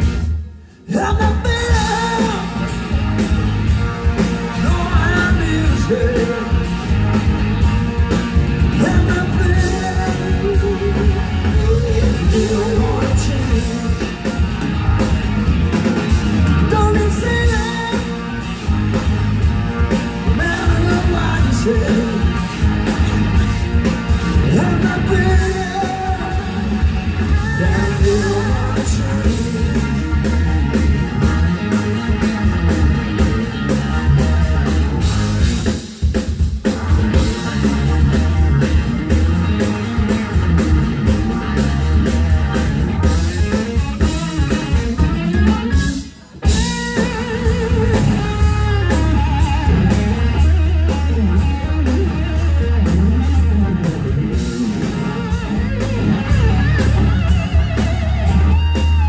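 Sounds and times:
rock band playing: 0.0s - 59.0s
man singing: 0.8s - 2.8s, 4.5s - 6.8s, 8.6s - 14.4s, 16.6s - 18.4s, 20.3s - 22.5s, 24.4s - 30.4s.

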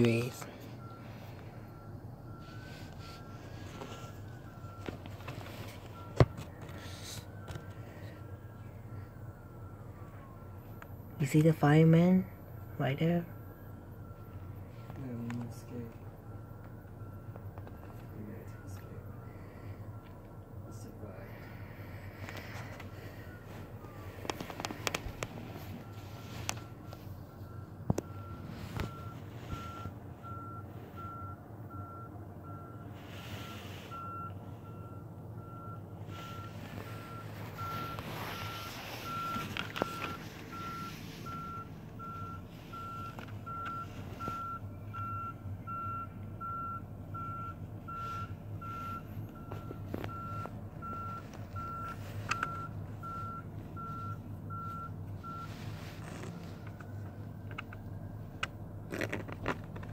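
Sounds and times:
reversing alarm beeping: 0.0s - 57.1s
truck engine running: 0.0s - 59.9s.

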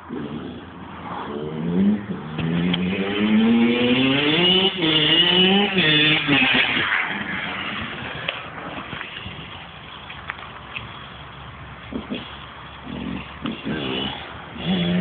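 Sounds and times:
dirt bike accelerating past: 0.1s - 9.0s.

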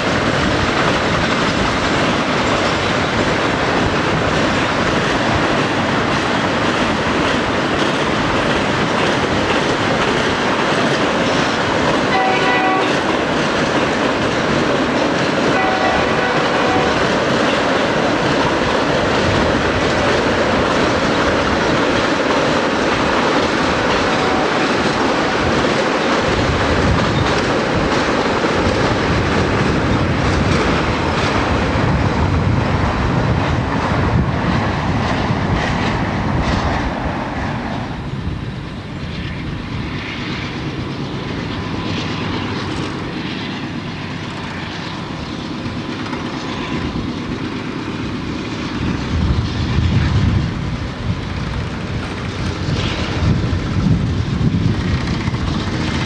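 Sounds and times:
wheels clattering over rail joints: 0.0s - 37.4s
freight train rumbling past: 0.0s - 56.0s.

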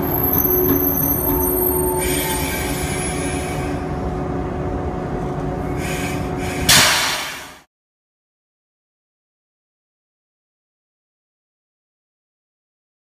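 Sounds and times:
diesel engines running: 0.0s - 7.5s
train wheels rumbling on rails: 0.0s - 7.7s
loud hiss: 5.8s - 7.6s.

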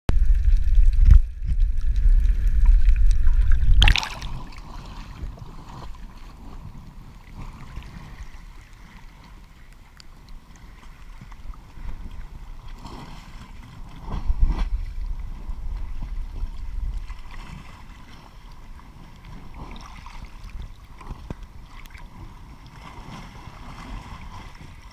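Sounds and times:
muffled underwater rumble: 0.1s - 24.9s
water lapping and sloshing: 0.1s - 24.9s
splashy rush breaking surface: 2.6s - 5.2s.

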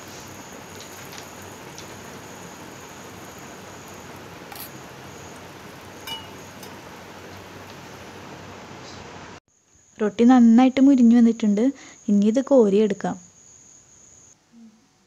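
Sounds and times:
patties sizzling in hot oil: 0.0s - 8.3s.

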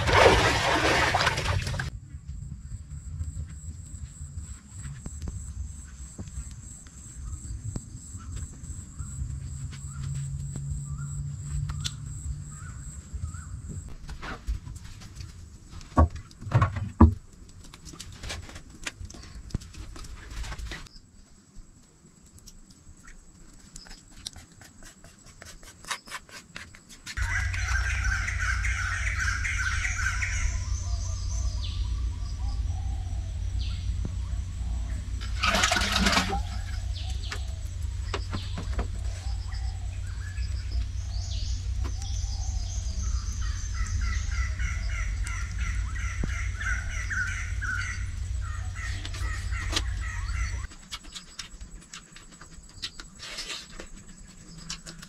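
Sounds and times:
steady low rumble: 0.0s - 13.9s, 27.2s - 50.7s
birds chirping and calling: 27.2s - 51.7s.

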